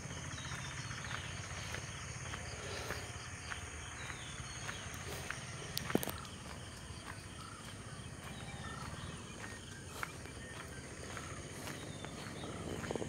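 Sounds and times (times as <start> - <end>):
bird chirps: 0.0 - 13.0
high insect drone: 0.0 - 13.0.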